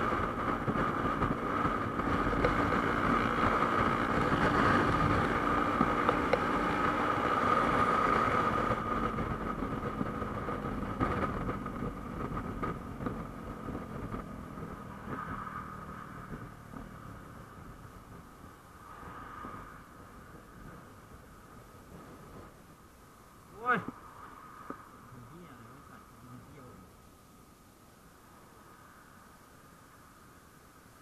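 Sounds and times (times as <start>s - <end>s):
vehicle engine running: 0.0s - 24.0s.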